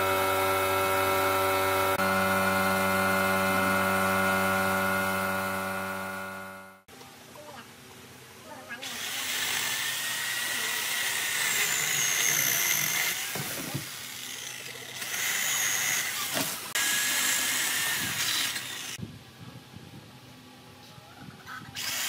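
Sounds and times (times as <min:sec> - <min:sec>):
electric chainsaw cutting branch: 0:00.0 - 0:06.9, 0:08.8 - 0:19.0, 0:21.8 - 0:22.0.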